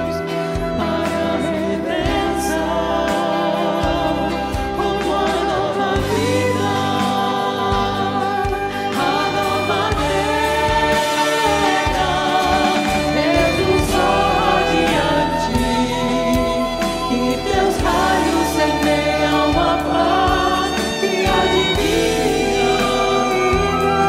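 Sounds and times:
choir and accompaniment: 0.0 - 24.0
women singing a hymn: 0.0 - 24.0.

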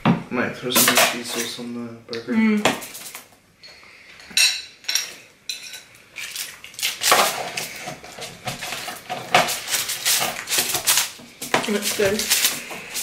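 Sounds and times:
forks scraping foil tray: 6.8 - 13.0.

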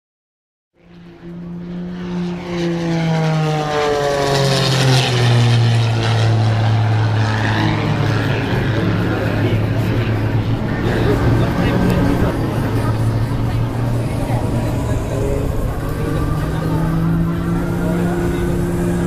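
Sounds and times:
propeller plane engine passing: 0.8 - 19.0.

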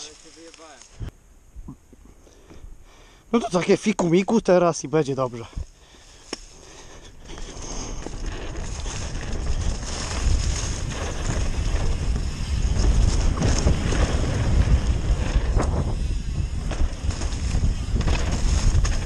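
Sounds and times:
bike rattling over bumps: 6.4 - 19.0
wind buffeting microphone: 7.2 - 19.0.

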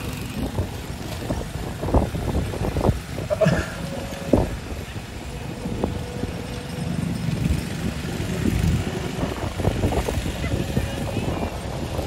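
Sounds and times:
tractor engine running slowly: 0.0 - 12.0.

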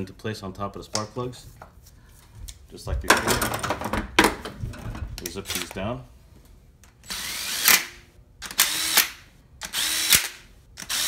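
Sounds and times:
cordless drill spinning bolts: 7.0 - 11.0.

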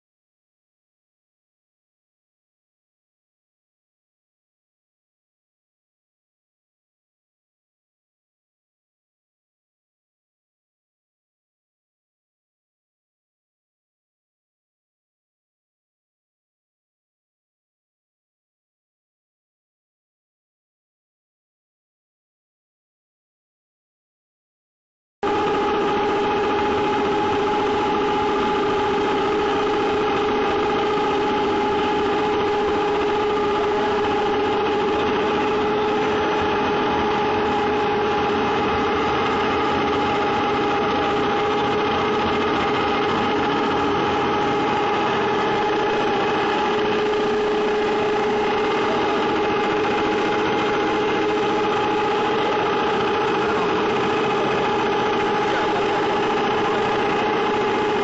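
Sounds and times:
extruder machine hum: 25.2 - 58.0
held machine whine: 25.2 - 58.0
higher machine whine: 25.2 - 58.0.

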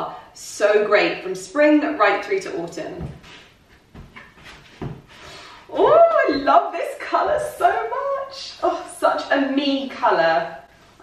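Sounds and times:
footsteps on wooden floor: 2.7 - 6.6.

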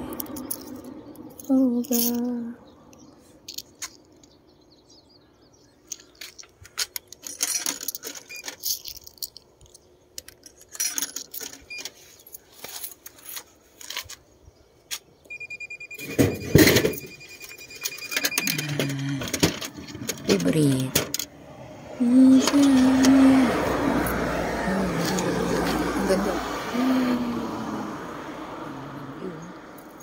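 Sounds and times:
coins clinking: 0.1 - 2.4, 3.4 - 4.3, 5.9 - 14.1, 16.0 - 21.3, 24.0 - 25.7
steady beep: 15.3 - 19.0
short beeps: 15.3 - 19.2
vending machine rattling clatter: 16.0 - 21.3.

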